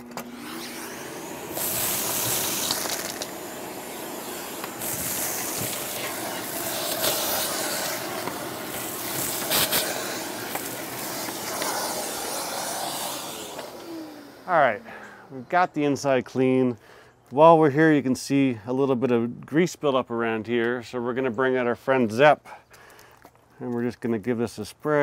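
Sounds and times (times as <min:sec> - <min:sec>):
dust extractor suction hiss: 0:00.1 - 0:15.5.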